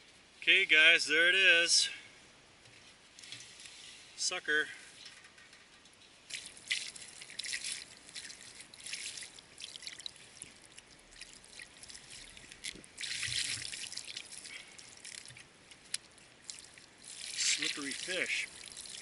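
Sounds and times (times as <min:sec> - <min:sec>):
water trickling and splashing: 0:06.1 - 0:19.0.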